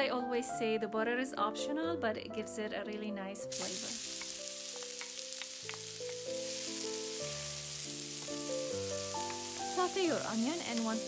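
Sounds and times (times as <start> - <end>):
background music melody: 0.0 - 11.0
onion sizzling in a frying pan: 3.5 - 11.0.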